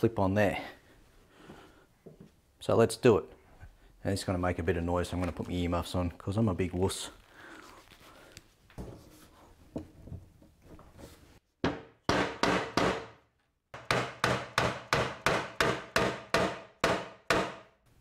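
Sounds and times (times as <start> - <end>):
mallet knocking timber frame: 11.6 - 13.2, 13.8 - 17.7.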